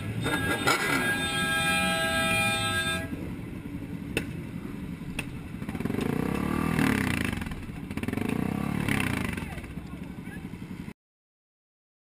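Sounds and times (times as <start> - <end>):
vehicle horn: 0.0 - 3.2
engine rising in pitch: 0.0 - 3.3
road and engine rumble: 0.0 - 11.0.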